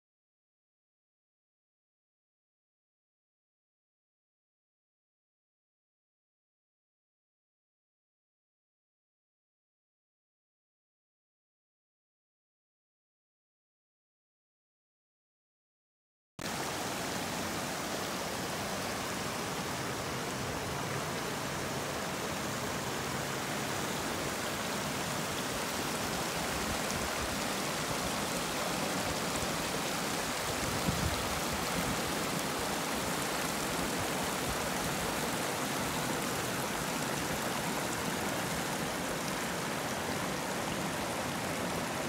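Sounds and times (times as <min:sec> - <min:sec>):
creek water flowing over rocks: 0:16.4 - 0:42.0.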